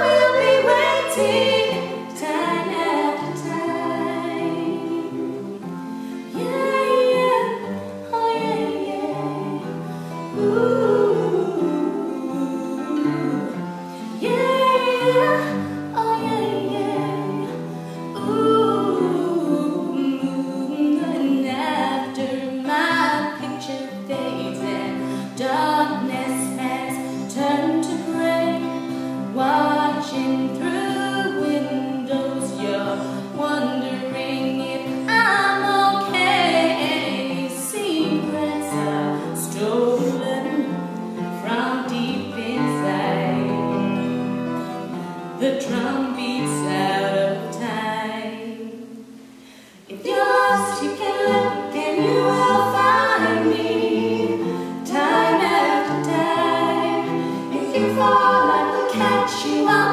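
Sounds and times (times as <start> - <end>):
women singing: 0.0 - 49.2, 49.8 - 59.9
plucked string instrument: 50.0 - 59.9.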